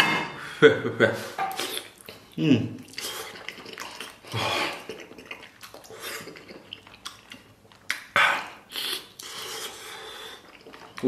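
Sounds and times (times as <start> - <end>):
person chewing: 1.4 - 11.0
wet mouth clicks and smacks: 1.5 - 9.4.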